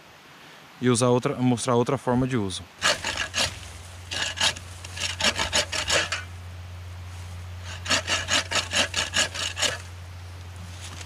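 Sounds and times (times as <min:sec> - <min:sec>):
wire saw rasping through wood: 0:02.8 - 0:06.3, 0:07.6 - 0:09.9.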